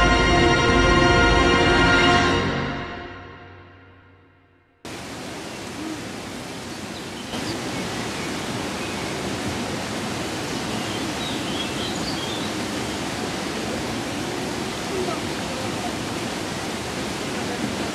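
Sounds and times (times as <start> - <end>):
river water rushing over rocks: 4.9 - 17.9.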